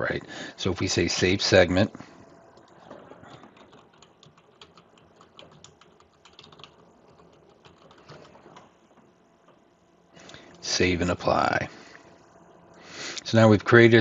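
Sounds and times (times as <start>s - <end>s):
keyboard typing: 2.3s - 9.6s.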